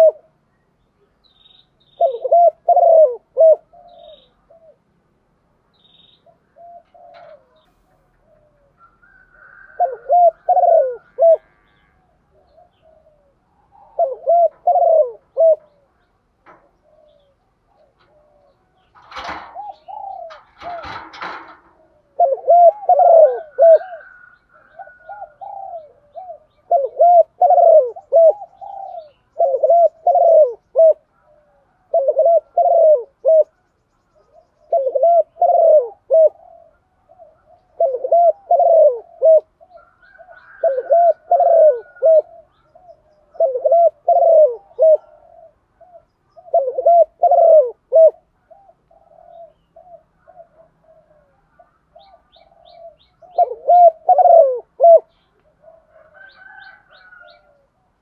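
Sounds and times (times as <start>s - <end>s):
dove cooing: 0.0s - 0.4s, 1.7s - 58.0s
rustling: 16.4s - 22.3s.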